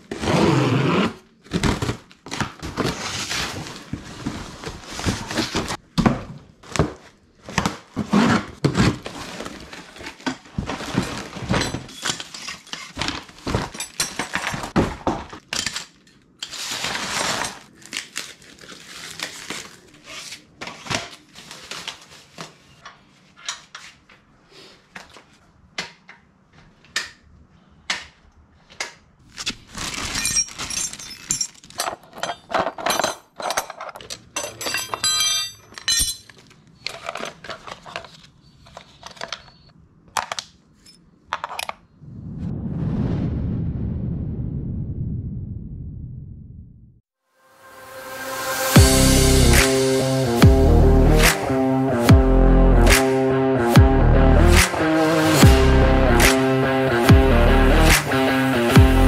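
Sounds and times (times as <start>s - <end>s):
packaging rustling: 6.5s - 15.5s, 16.5s - 23.2s, 29.2s - 31.8s
metal tubes knocking and clattering: 30.8s - 36.4s.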